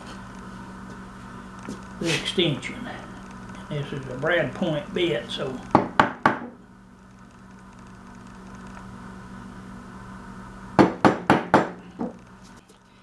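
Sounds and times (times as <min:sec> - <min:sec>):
steady low hum: 0:00.0 - 0:13.0
tool knocking on wood: 0:05.7 - 0:06.6, 0:10.8 - 0:12.2.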